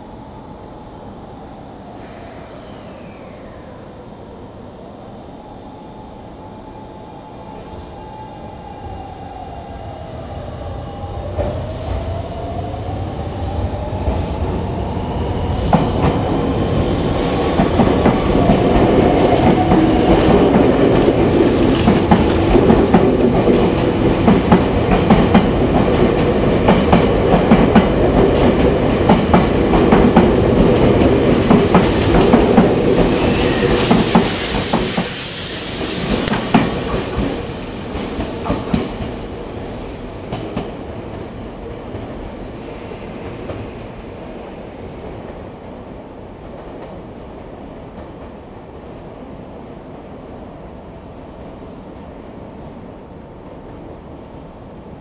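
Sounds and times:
train rumble: 0:08.6 - 0:50.0
high hiss: 0:09.7 - 0:18.4, 0:31.8 - 0:39.0.

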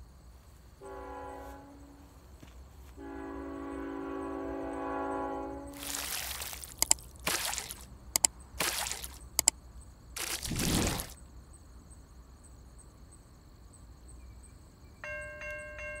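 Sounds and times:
locomotive horn: 0:00.8 - 0:02.2, 0:02.9 - 0:05.8
mouse clicks: 0:06.8 - 0:07.0, 0:09.3 - 0:09.5
whooshes: 0:10.2 - 0:11.2.

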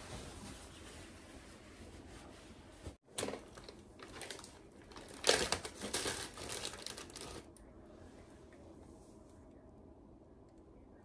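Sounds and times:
plastic bag crinkling: 0:03.1 - 0:07.6.

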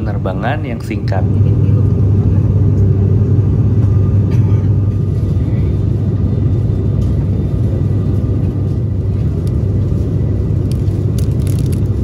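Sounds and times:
turboprop cabin drone: 0:00.0 - 0:12.0
plastic snack bag crinkling: 0:11.1 - 0:12.0.

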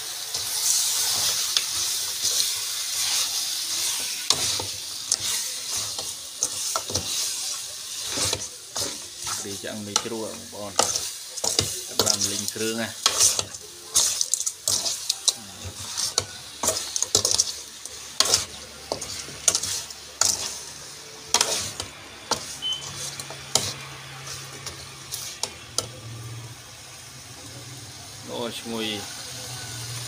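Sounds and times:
meat sizzling: 0:00.0 - 0:30.0
metal spoon scraping a pot: 0:00.3 - 0:10.1, 0:10.7 - 0:20.6, 0:21.3 - 0:25.6.

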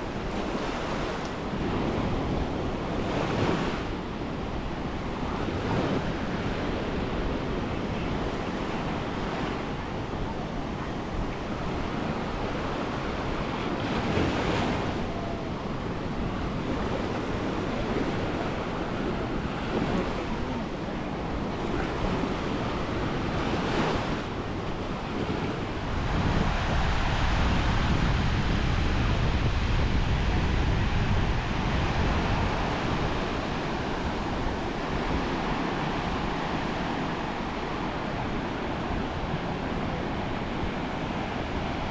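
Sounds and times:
wind buffeting microphone: 0:00.0 - 0:41.9.

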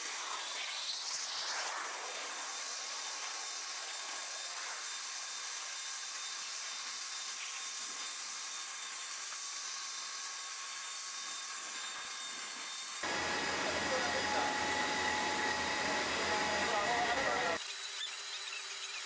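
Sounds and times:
steady hiss: 0:13.0 - 0:17.6
turbine machinery whine: 0:13.0 - 0:17.6.

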